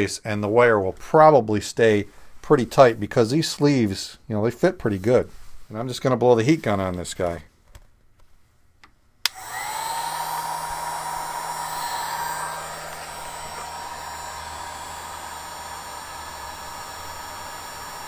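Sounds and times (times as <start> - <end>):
heat gun blowing air: 9.3 - 18.0.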